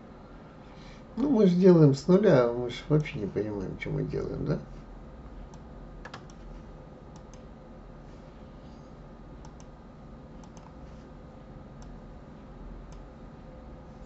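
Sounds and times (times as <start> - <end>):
low steady hum: 0.0 - 14.0
computer mouse clicks: 5.5 - 6.4, 7.1 - 7.5, 9.4 - 9.7, 10.4 - 10.8.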